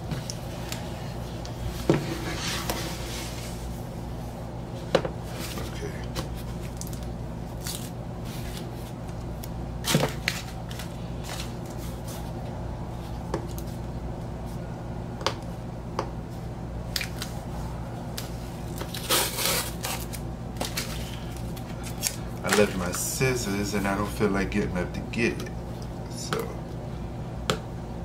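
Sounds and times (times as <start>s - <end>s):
steady low hum: 0.0s - 28.0s
tape crackling scrape: 18.2s - 22.8s
fingernails scratching packing tape: 18.9s - 20.2s.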